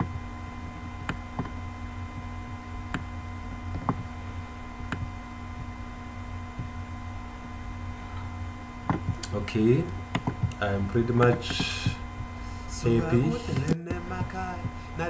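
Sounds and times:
low electrical hum and hiss: 0.0s - 15.0s.

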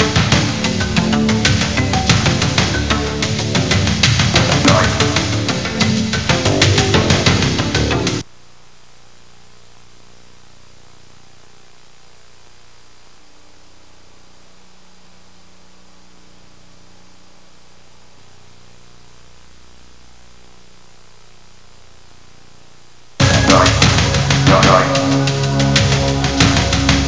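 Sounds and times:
music: 0.0s - 8.2s, 23.2s - 27.0s
tape hiss: 0.0s - 27.0s
faint low hum: 8.2s - 27.0s.

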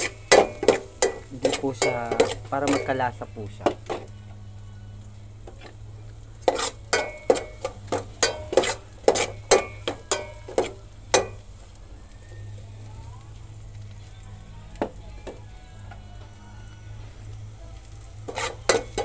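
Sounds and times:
utensil clanking against metal pot: 0.0s - 4.1s, 6.4s - 11.5s, 18.2s - 19.0s
faint sizzle: 0.0s - 19.0s
low steady hum: 0.0s - 19.0s.

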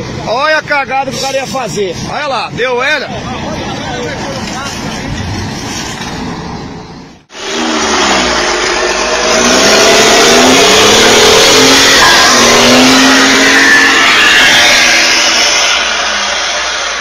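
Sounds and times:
truck engine revving: 3.4s - 17.0s
loud rushing noise: 4.6s - 17.0s.

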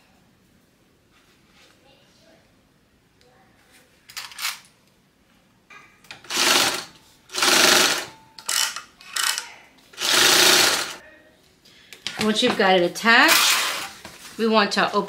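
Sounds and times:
sewing machine stitching: 6.2s - 8.1s, 10.0s - 11.0s.

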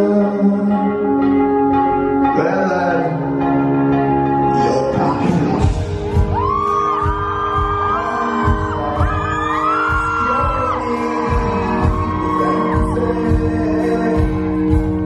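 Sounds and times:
vocals with sliding held notes: 0.0s - 5.8s, 7.7s - 15.0s
drum beat: 5.6s - 15.0s.

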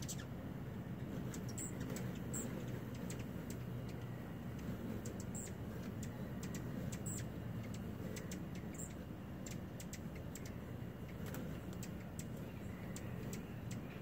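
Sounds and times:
hummingbird chirps: 0.0s - 14.0s
steady low hum: 0.0s - 14.0s
sharp ticks: 1.3s - 14.0s.

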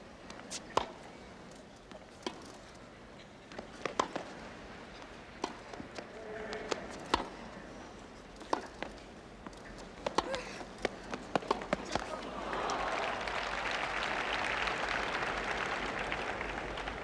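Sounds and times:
tennis ball bouncing on court: 3.5s - 4.3s, 5.4s - 7.4s, 8.4s - 12.1s
rackets hitting tennis ball: 3.5s - 4.4s, 5.1s - 7.5s, 8.3s - 12.4s.

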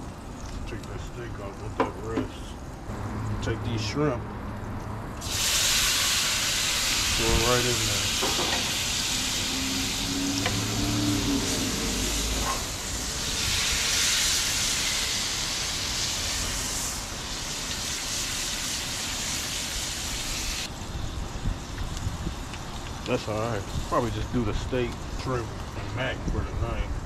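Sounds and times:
shrimp sizzling in a skillet: 5.2s - 25.0s.

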